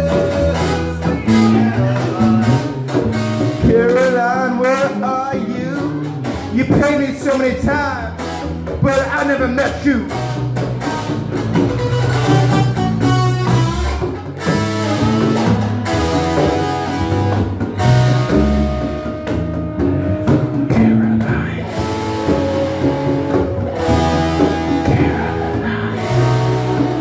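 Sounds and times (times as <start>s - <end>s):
bass line: 0.0s - 27.0s
guitar: 0.0s - 27.0s
live band playing: 0.0s - 27.0s
trombone and brass horn: 11.8s - 19.4s, 21.7s - 27.0s.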